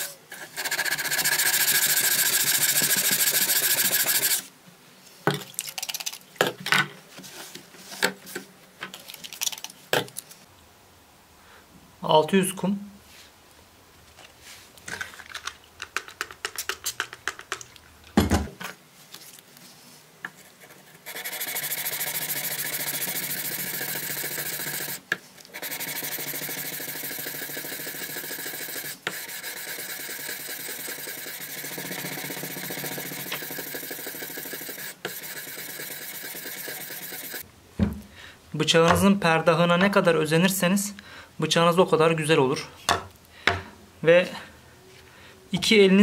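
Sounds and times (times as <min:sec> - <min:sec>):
sandpaper scraping steel blade: 0:00.0 - 0:04.5, 0:20.5 - 0:37.4.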